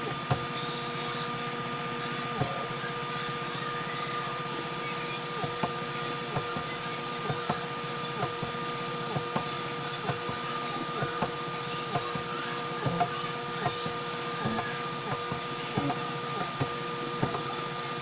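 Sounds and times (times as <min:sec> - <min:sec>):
printer machine whine: 0:00.0 - 0:18.0.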